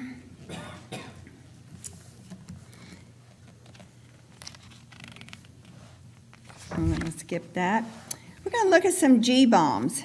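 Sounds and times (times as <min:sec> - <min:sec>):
paper rustling: 0:03.4 - 0:07.3.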